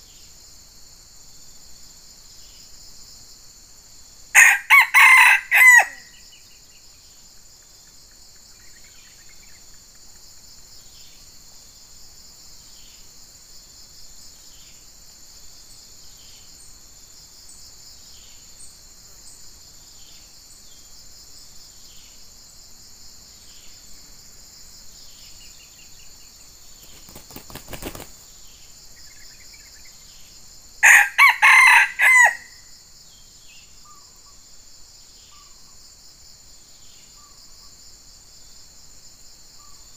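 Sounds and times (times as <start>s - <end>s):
chorus of insects: 0.0s - 39.9s
rooster crowing: 4.4s - 6.2s, 30.8s - 32.7s
rustling flurry: 26.8s - 28.2s.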